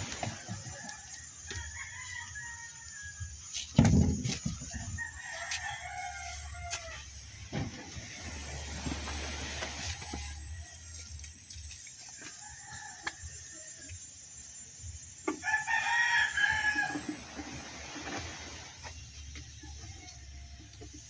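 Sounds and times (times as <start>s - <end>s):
rooster crowing: 0.0s - 3.4s, 4.7s - 7.2s, 15.3s - 17.4s.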